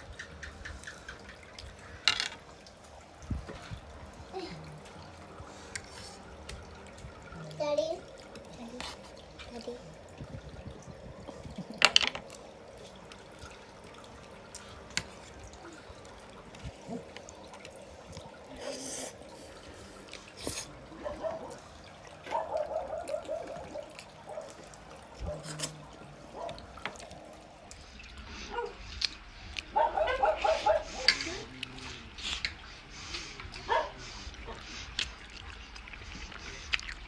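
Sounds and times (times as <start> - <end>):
wet chewing: 11.2 - 37.0.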